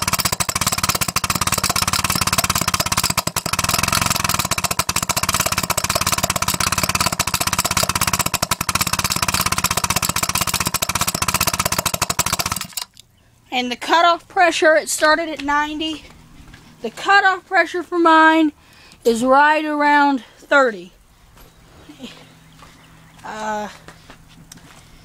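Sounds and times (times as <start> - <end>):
small steam engine running fast: 0.0 - 12.9
metal-on-metal clatter: 0.0 - 13.0.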